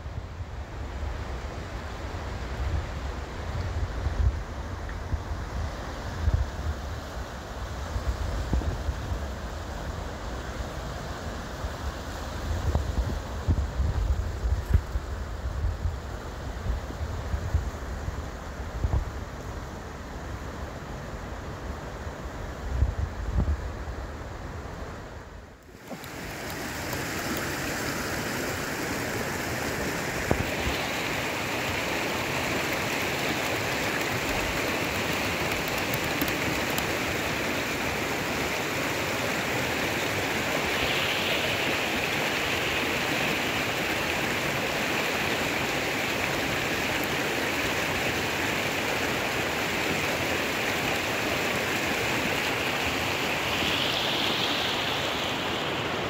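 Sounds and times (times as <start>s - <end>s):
creek rushing over stones: 25.7s - 56.0s.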